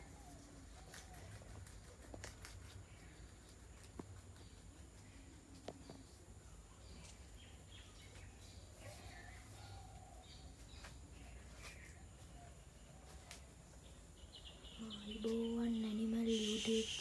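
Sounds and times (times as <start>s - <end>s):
distant bird calls: 5.1s - 17.0s.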